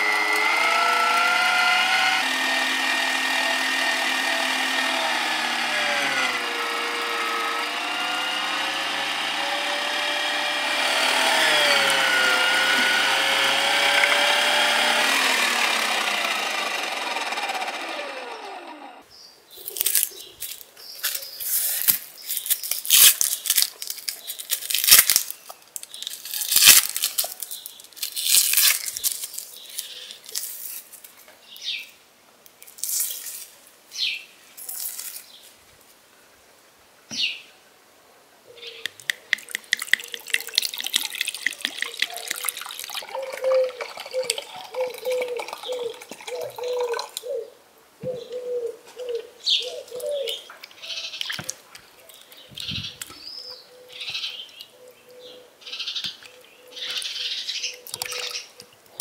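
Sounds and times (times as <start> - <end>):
electric meat grinder motor running: 0.0 - 19.0.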